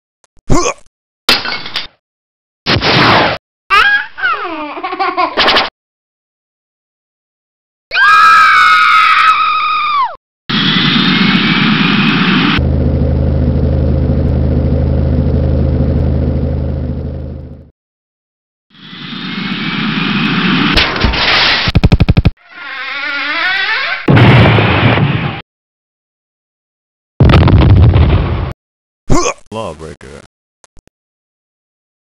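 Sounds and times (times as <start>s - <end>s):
vehicle engine running: 11.8s - 17.7s.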